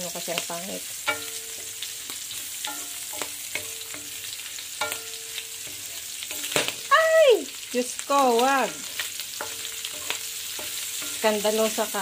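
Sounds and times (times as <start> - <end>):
food sizzling in oil: 0.0 - 12.0
spatula scraping wok: 0.3 - 6.9, 7.7 - 12.0
spatula knocking pan with ringing: 1.0 - 1.9, 2.6 - 6.8, 8.6 - 11.4.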